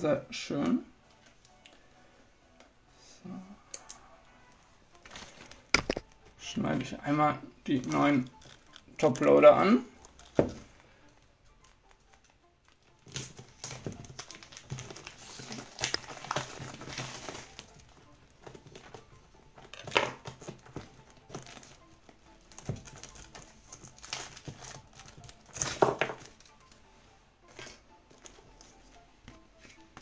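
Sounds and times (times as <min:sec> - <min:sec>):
plastic wrapping crinkling: 0:04.6 - 0:06.3, 0:07.7 - 0:10.6, 0:11.6 - 0:26.8.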